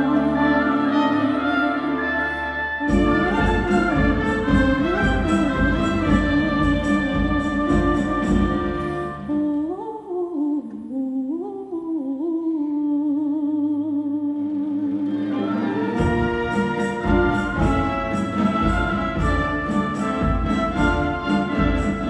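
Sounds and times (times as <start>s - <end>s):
timpani: 0.0s - 9.5s, 15.0s - 22.0s
strings: 0.0s - 9.7s, 14.5s - 22.0s
double basses: 0.0s - 9.8s, 14.4s - 22.0s.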